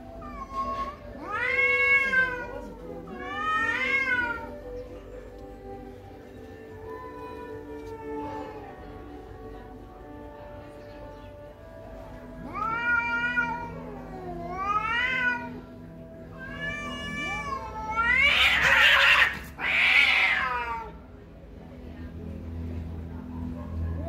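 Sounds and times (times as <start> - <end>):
cats yowling: 0.0 - 4.8, 12.3 - 20.9.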